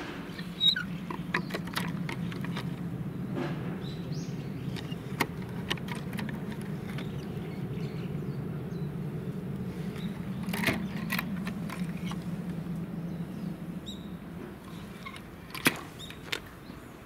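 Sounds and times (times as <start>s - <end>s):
wooden flaps clacking: 0.0s - 3.8s, 4.5s - 7.7s, 9.9s - 12.6s, 14.7s - 16.6s
low steady machine hum: 0.0s - 15.6s.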